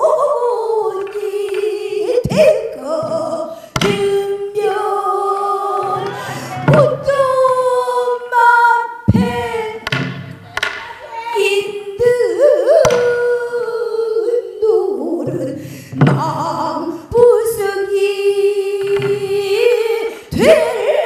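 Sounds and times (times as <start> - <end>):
woman singing long wavering notes: 0.0 - 9.9, 11.0 - 15.6.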